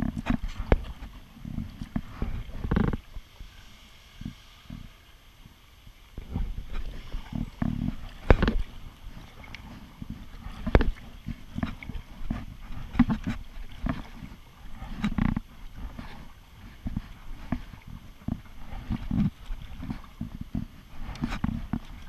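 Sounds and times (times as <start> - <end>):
kayak paddle splashing: 0.0 - 3.6, 4.2 - 22.0
paddle clacking against kayak: 6.2 - 22.0.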